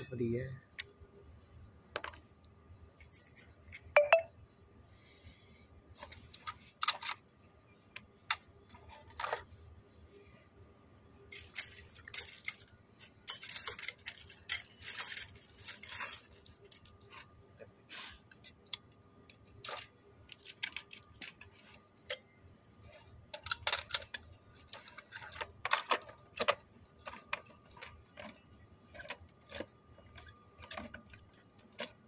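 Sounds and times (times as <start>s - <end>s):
metal tools clinking: 11.3s - 17.2s.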